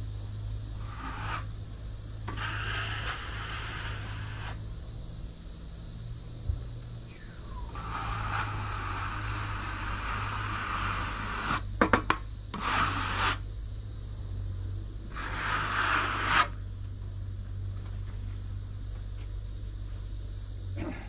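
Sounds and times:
steady low hum: 0:00.0 - 0:21.0
wood scraping against wood: 0:00.8 - 0:01.6, 0:02.3 - 0:04.6, 0:07.7 - 0:13.4, 0:15.1 - 0:16.6.

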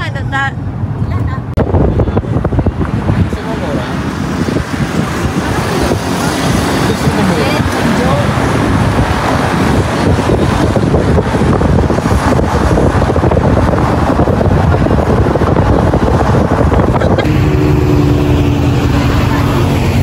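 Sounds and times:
wind and road noise: 0:00.0 - 0:20.0.

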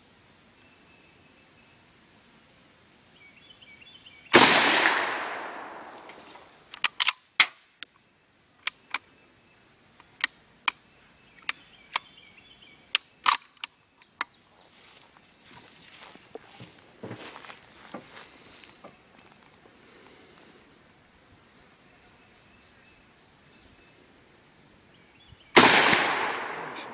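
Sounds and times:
rifle shot with echo: 0:04.3 - 0:06.1, 0:25.6 - 0:26.9.

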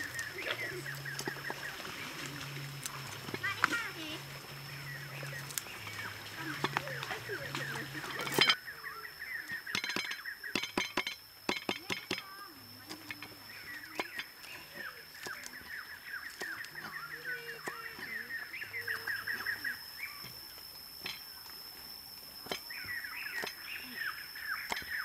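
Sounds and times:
bird calls: 0:00.0 - 0:21.6, 0:22.4 - 0:25.0
steady high whine: 0:00.0 - 0:25.0.

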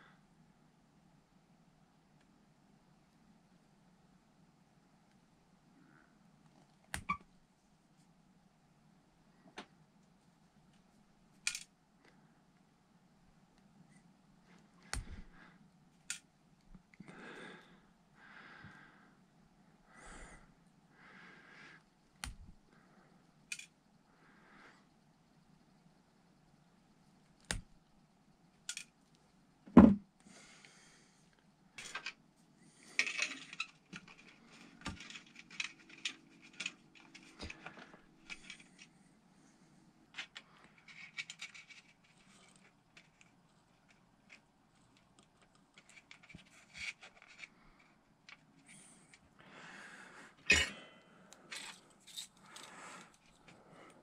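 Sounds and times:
tools put down and picked up: 0:50.5 - 0:50.8.

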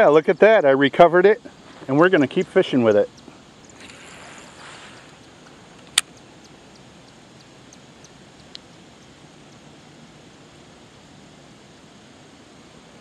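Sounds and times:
low outdoor hiss: 0:00.0 - 0:13.0
faint ticks: 0:01.3 - 0:13.0
sharp clicks: 0:01.8 - 0:09.6.

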